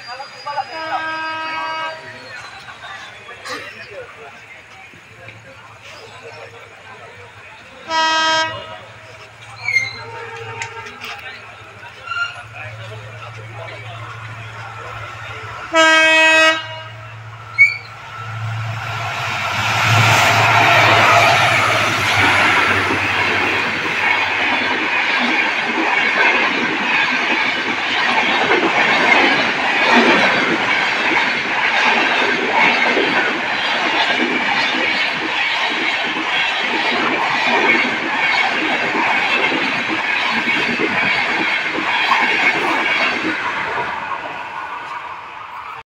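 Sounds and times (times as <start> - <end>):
locomotive low hum: 16.6 - 25.9
train wheels clattering over rail joints: 19.7 - 44.2.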